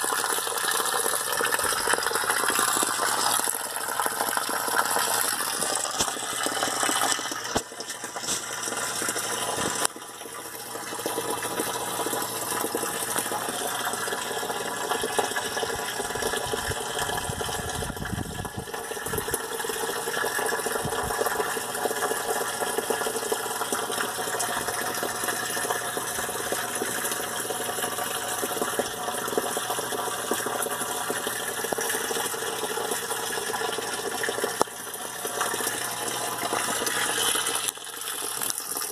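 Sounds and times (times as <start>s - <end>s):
water pouring and splashing: 0.0s - 38.9s.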